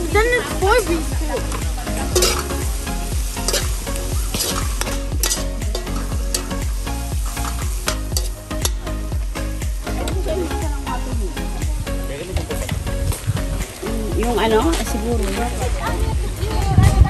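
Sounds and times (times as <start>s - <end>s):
vegetables sizzling in a wok: 0.0s - 12.0s
metal utensil scraping a wok: 1.4s - 2.7s, 3.4s - 8.8s.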